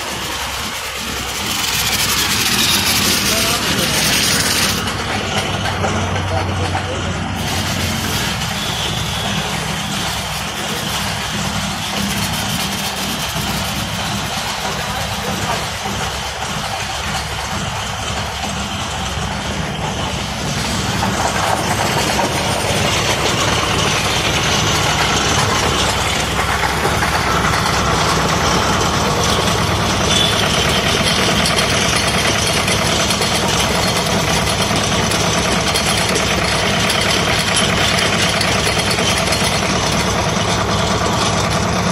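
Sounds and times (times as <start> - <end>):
water jet hissing: 0.0 - 41.8
pressure washer pump humming: 0.0 - 41.9.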